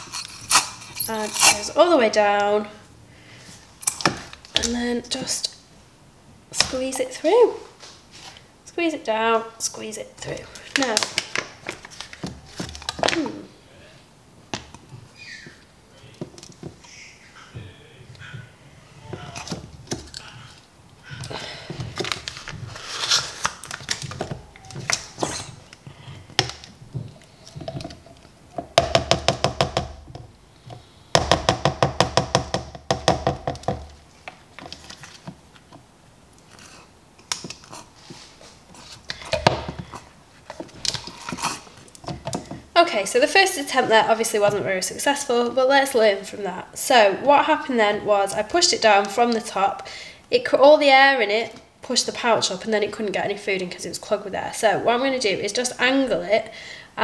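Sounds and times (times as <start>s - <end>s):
plastic plunger tapping: 28.6s - 34.0s.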